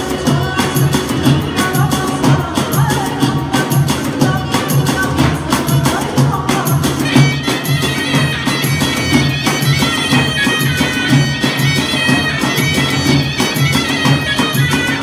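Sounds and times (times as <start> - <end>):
steady drumbeat: 0.0 - 15.0
double-reed shawm melody: 4.0 - 15.0.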